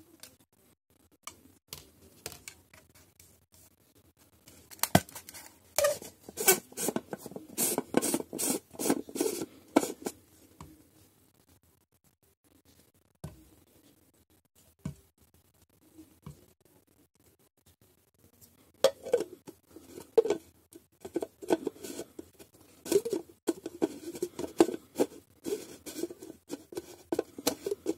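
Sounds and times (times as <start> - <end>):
lid scraping on plastic cup: 5.8 - 10.2, 18.9 - 27.9.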